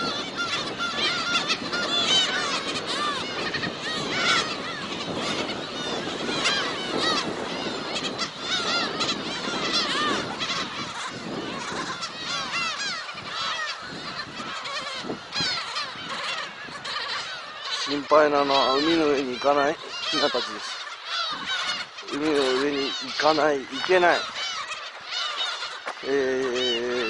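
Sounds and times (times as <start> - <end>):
flock of gulls calling: 0.0 - 27.0.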